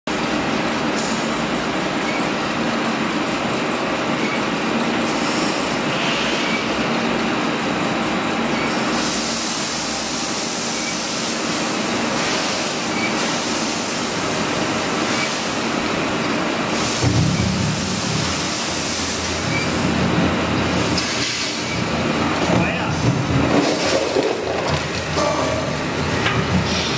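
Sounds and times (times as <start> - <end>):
shredder rumble and clatter: 19.3 - 26.9.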